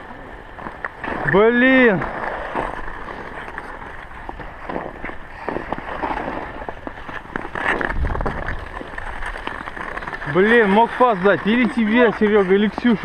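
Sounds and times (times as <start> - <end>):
ice skate blades scraping ice: 0.0 - 13.0
wind rumble on microphone: 7.7 - 9.4.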